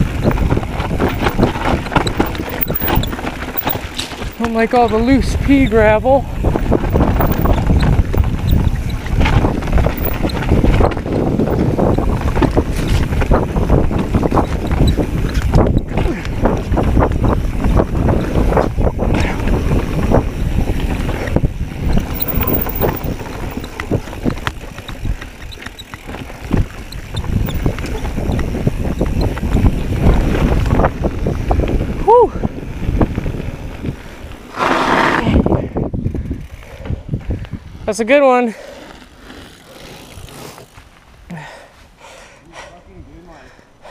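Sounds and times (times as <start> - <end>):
tyres rolling over gravel: 0.0 - 5.4, 20.9 - 29.7
bike rattling and knocking: 0.0 - 32.0, 35.6 - 37.5
wind rushing over microphone: 0.0 - 38.4.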